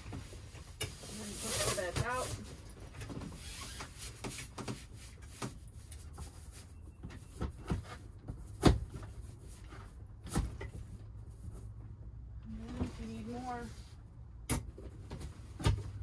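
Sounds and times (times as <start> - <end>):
camper canvas and frame knocks and clicks: 14.5 - 16.0.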